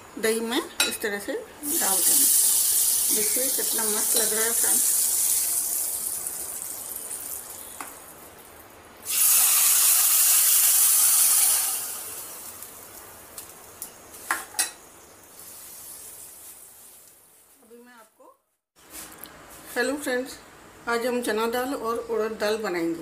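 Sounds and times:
hot oil sizzling: 1.6 - 17.4.

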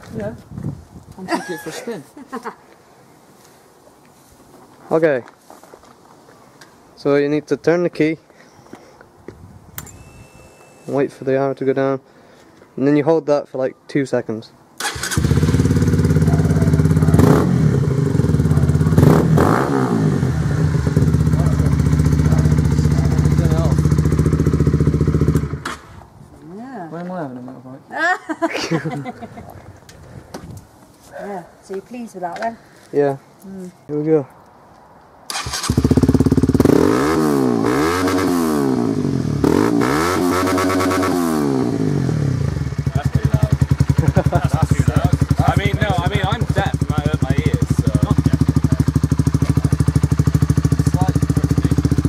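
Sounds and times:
motorcycle engine idling and revving: 14.9 - 25.9, 35.3 - 52.0.

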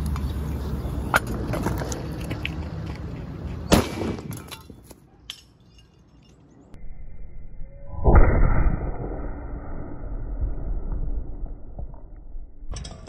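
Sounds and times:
firecracker bang: 3.7 - 4.3
steady low rumble: 6.7 - 12.9.

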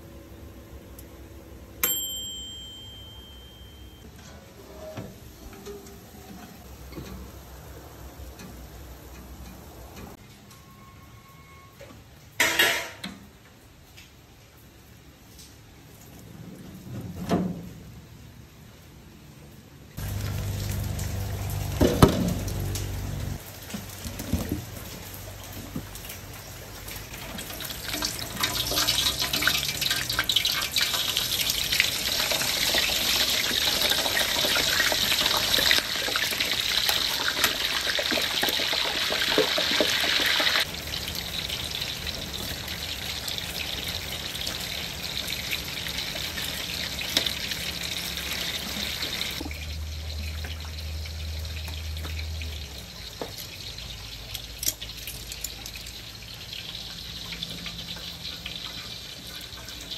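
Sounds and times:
pork frying in oil: 20.0 - 59.9.

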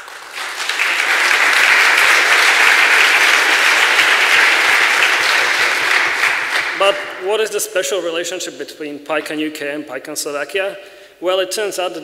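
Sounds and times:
audience applauding: 0.0 - 7.1.

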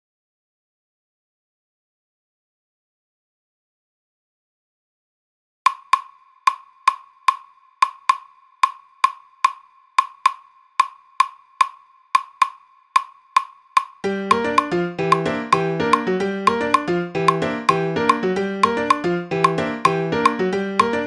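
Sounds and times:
clave wooden clicks: 5.7 - 21.0
band with piano and bass: 14.0 - 21.0.

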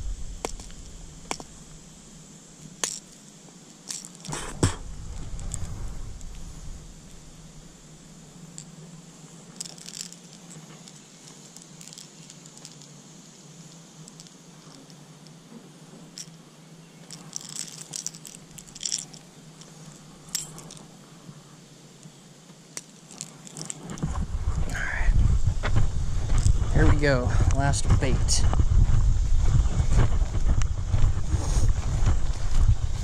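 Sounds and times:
steady low hum: 0.0 - 33.0
fishing gear clicking and rattling: 2.6 - 7.4, 8.4 - 13.0, 13.6 - 15.4, 16.1 - 16.4, 17.0 - 21.0, 22.0 - 24.6.

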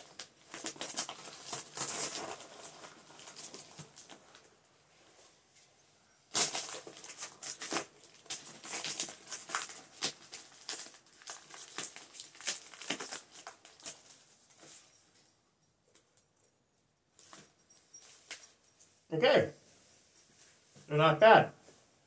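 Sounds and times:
snack bag crinkling: 6.3 - 14.6.

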